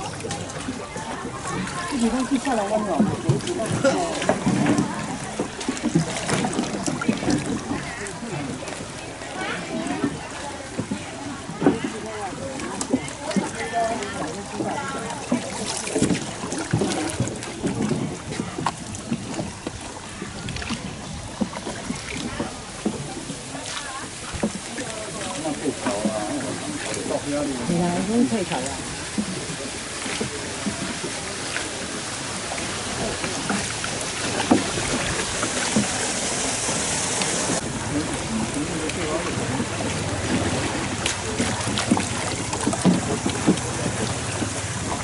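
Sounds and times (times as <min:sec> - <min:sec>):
rowing boat water noise: 0:00.0 - 0:45.0.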